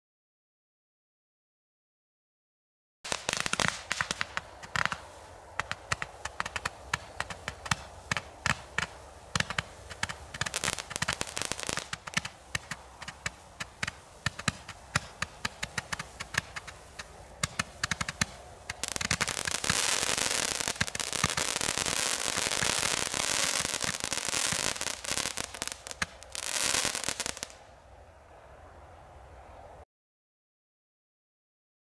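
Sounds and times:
firework crackling: 3.1 - 27.7.

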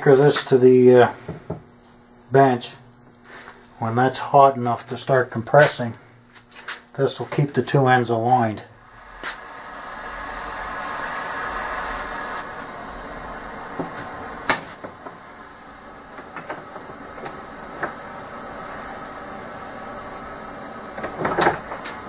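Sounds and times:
propane torch hissing: 8.6 - 22.0.

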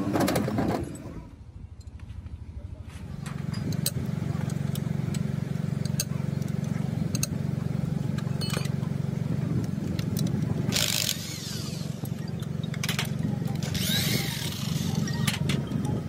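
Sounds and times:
power tool humming: 10.7 - 12.2.

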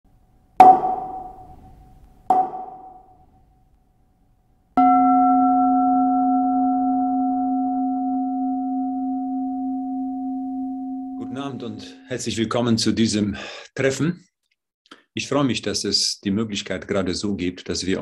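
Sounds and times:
struck meditation bell chimes: 4.8 - 12.0
singing bowl ringing: 4.8 - 12.1.

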